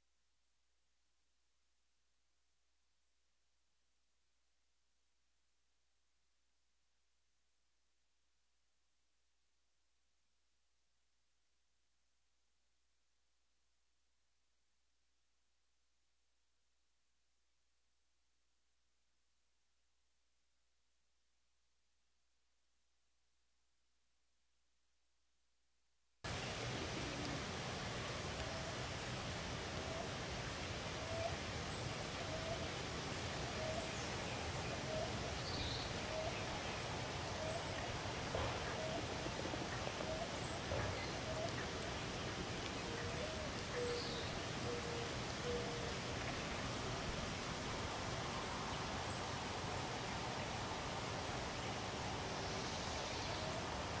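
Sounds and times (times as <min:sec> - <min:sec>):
background hiss: 0:26.2 - 0:54.0.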